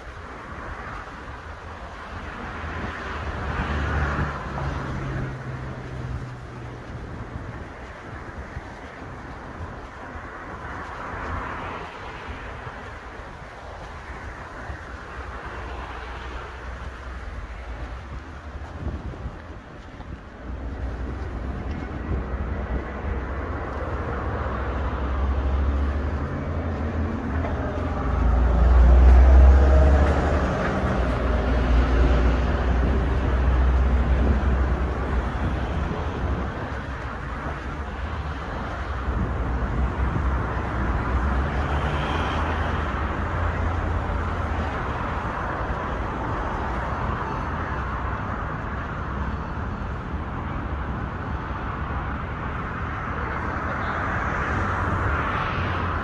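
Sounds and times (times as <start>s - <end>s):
cars passing: 0.0s - 56.0s.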